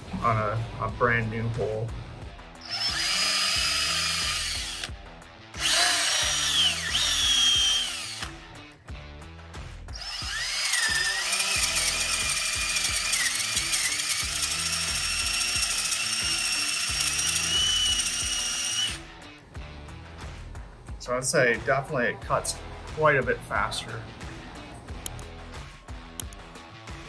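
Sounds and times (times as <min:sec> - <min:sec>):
power drill boring into wood: 0:02.6 - 0:05.0, 0:05.6 - 0:08.4, 0:10.0 - 0:19.1.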